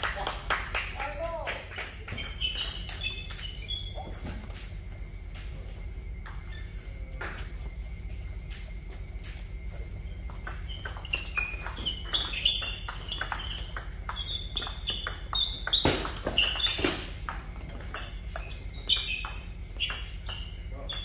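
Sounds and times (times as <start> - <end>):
shoes squeaking on floor: 1.1 - 21.0
ping pong ball clicking: 2.2 - 3.6, 10.4 - 21.0.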